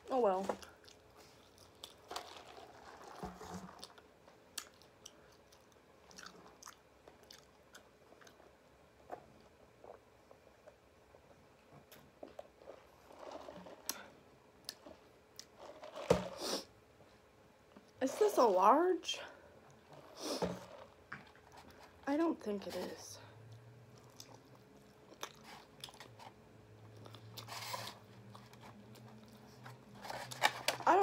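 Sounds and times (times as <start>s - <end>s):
person chewing food: 0.6s - 11.4s, 23.5s - 29.9s.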